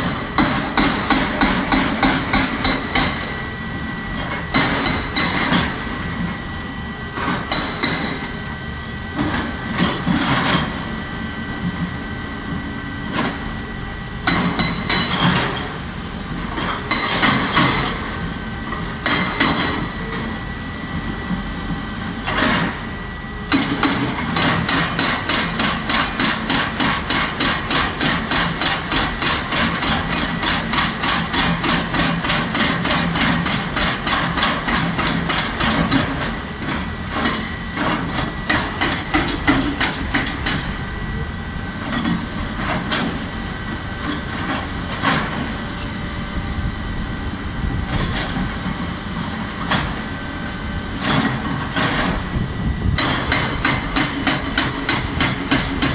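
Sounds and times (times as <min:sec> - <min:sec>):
hydraulic breaker hammering rock: 0:00.0 - 0:03.4, 0:04.2 - 0:06.0, 0:07.2 - 0:08.3, 0:14.2 - 0:15.8, 0:16.5 - 0:20.3, 0:23.5 - 0:40.8, 0:51.0 - 0:55.9
excavator engine running: 0:00.0 - 0:55.9.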